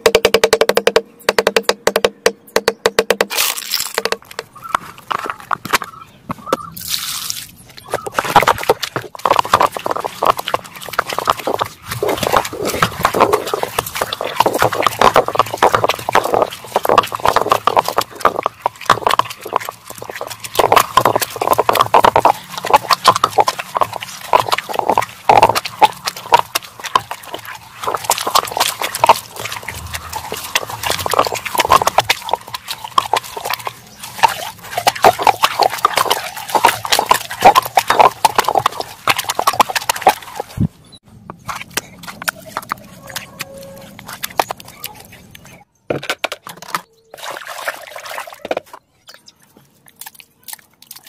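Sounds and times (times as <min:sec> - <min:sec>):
stone knocking on stone: 0:00.0 - 0:03.3
stone roller scraping and crunching: 0:03.2 - 0:40.7, 0:41.3 - 0:46.9.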